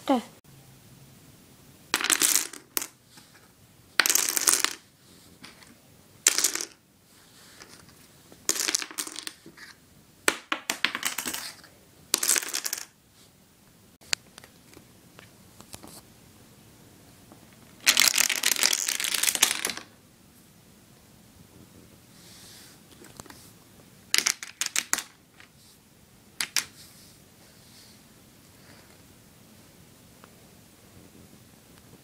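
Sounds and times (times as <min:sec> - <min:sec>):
dominoes clattering on wood: 0:02.0 - 0:03.0, 0:04.0 - 0:05.6, 0:06.2 - 0:06.8, 0:08.4 - 0:13.0, 0:17.8 - 0:19.9, 0:24.1 - 0:25.5, 0:26.4 - 0:26.8.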